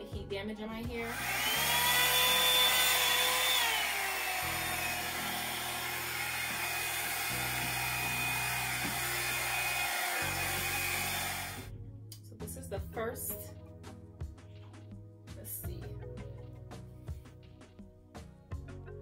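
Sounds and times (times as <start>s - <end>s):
hair dryer brush running: 1.0s - 11.7s.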